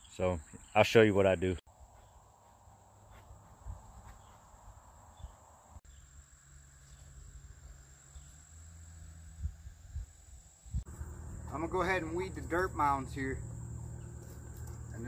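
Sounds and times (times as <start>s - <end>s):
insects trilling: 4.1s - 15.0s.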